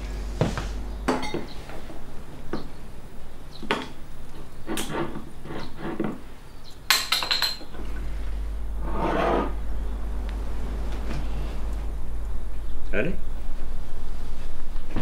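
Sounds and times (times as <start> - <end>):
glass and dishes clinking: 1.1 - 1.5, 6.9 - 7.7.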